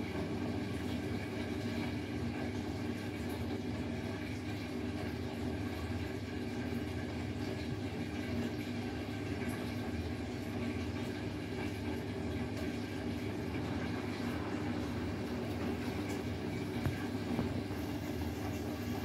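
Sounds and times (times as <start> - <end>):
washing machine drum humming: 0.0 - 19.0.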